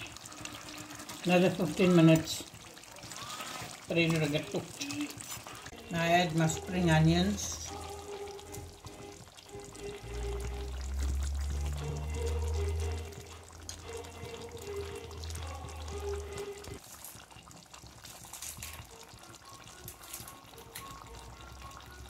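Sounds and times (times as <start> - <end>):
curry bubbling in a pot: 0.0 - 22.0.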